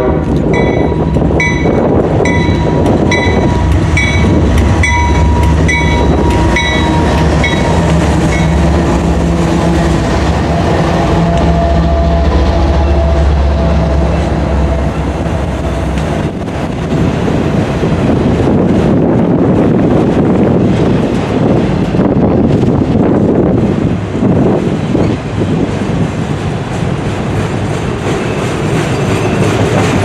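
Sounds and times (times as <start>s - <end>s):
locomotive bell ringing: 0.0s - 8.9s
diesel locomotive engines: 0.0s - 30.0s
train wheels on rails: 0.0s - 30.0s.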